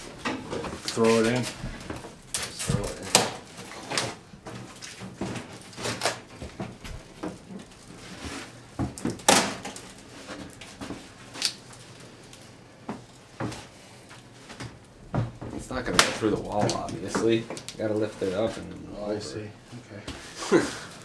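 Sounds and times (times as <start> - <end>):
bathtub knocking and scraping: 14.5 - 18.7.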